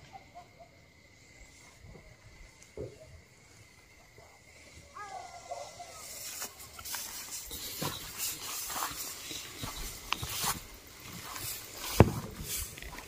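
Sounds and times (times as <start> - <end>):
dry grass rustling and swishing: 6.0 - 13.0.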